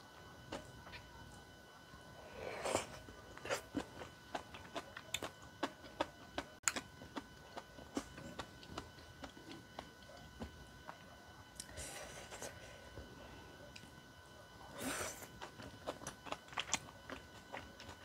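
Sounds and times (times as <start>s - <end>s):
wet chewing: 2.6s - 10.0s, 15.0s - 18.0s.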